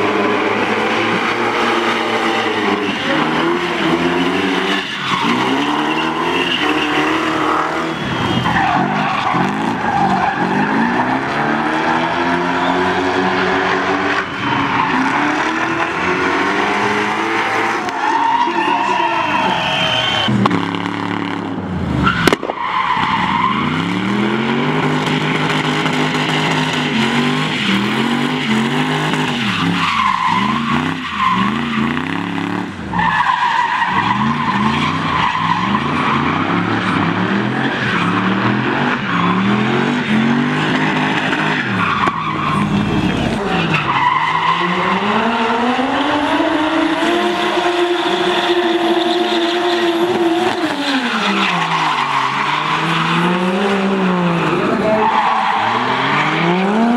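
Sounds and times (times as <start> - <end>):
tyres squealing: 0.0 - 20.3
car engines revving: 0.0 - 56.9
sharp crack: 22.2 - 23.1.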